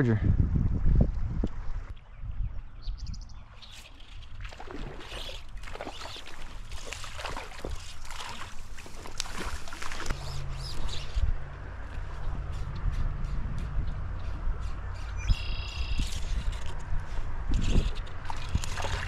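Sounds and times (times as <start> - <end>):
wind rumble on microphone: 0.0 - 5.1, 9.8 - 19.0
water splashing in a stream: 3.6 - 11.0, 18.0 - 19.0.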